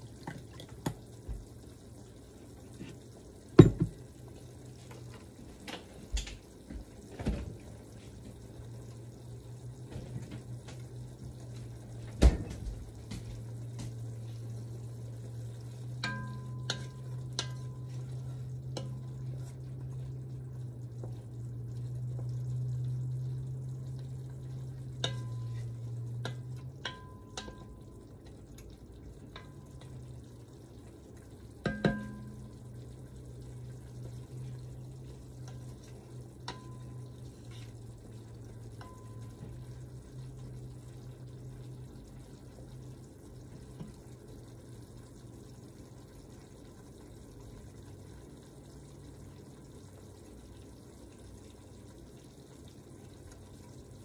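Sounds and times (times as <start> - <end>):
steady low hum: 0.0 - 54.0
spoon knocking against pot: 3.6 - 4.0, 31.6 - 32.4
spoon stirring bubbling sauce: 13.1 - 53.9.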